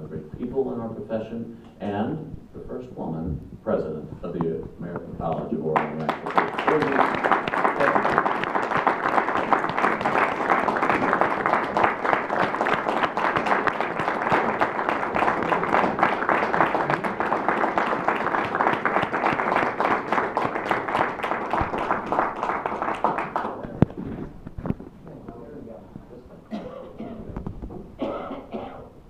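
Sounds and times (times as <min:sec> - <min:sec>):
audience applauding: 0:05.6 - 0:23.8.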